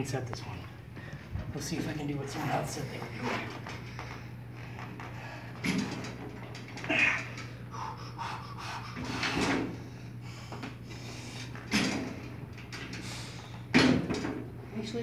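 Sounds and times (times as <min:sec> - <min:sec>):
steady low hum: 0:00.0 - 0:15.0
breaths of effort: 0:06.8 - 0:11.6.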